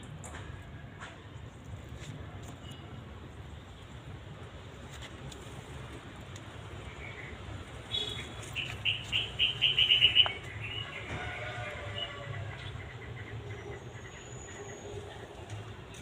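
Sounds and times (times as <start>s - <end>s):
bird chirping: 7.9s - 11.1s.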